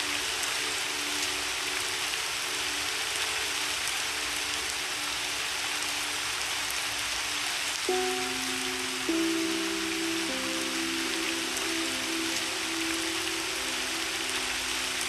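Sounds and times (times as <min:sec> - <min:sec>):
rain falling: 0:00.0 - 0:15.0
soft held piano notes: 0:07.8 - 0:15.0.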